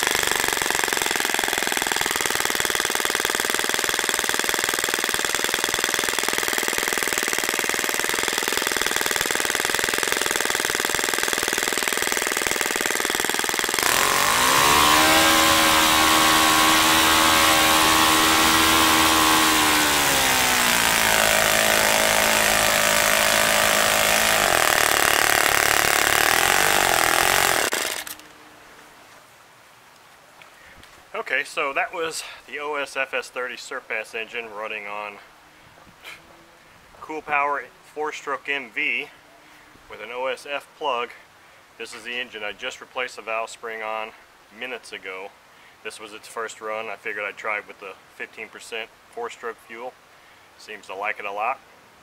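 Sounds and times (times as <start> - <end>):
model engine running: 0.0 - 28.3.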